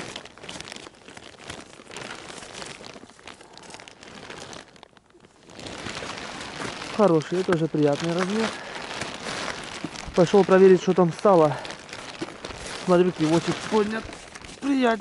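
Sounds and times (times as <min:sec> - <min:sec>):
plastic rain cape rustling: 0:00.0 - 0:15.0
snow crunching: 0:05.4 - 0:15.0.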